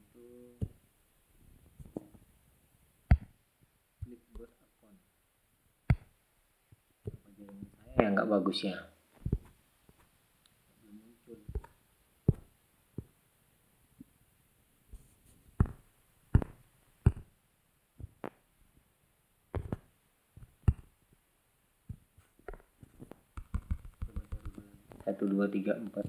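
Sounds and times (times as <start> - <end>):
fingertip taps on smartphone: 5.9 - 6.1, 11.5 - 13.1, 15.6 - 17.3, 19.5 - 20.9, 21.9 - 24.6.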